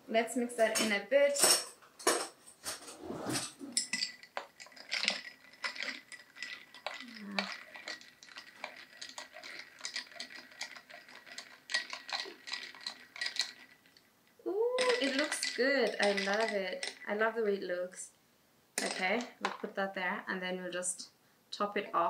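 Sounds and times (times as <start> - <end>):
spoon clinking ice in glass: 3.8 - 13.7.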